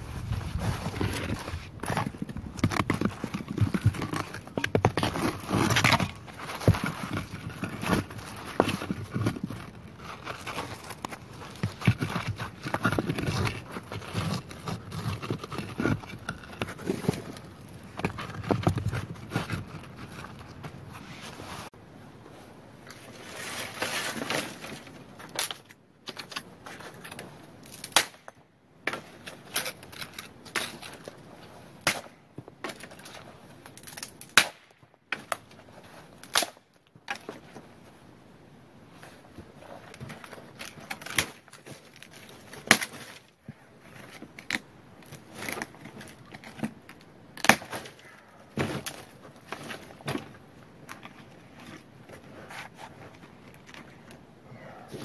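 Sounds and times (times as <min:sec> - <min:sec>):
footsteps crunching through snow: 0:00.0 - 0:03.7
rustle: 0:00.0 - 0:55.0.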